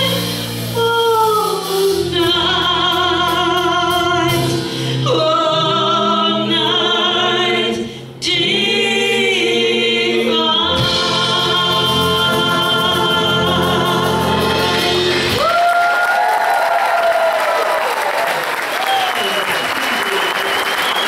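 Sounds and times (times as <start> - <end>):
voices singing in harmony: 0.0 - 15.7.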